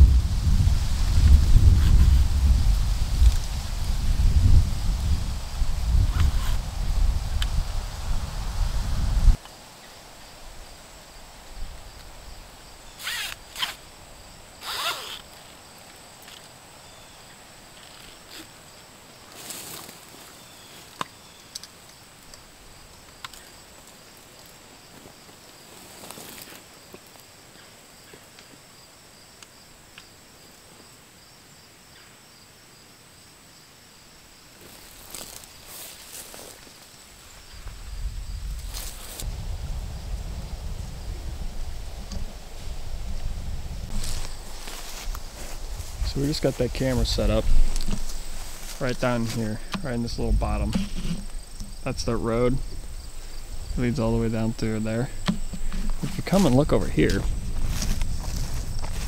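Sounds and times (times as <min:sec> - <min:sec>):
backpack zipper rasping: 0:06.2 - 0:06.6, 0:13.0 - 0:13.8, 0:14.6 - 0:15.2.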